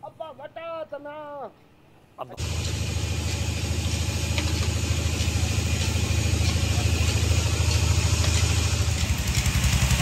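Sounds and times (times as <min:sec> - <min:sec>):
engine idling: 0:02.4 - 0:10.0.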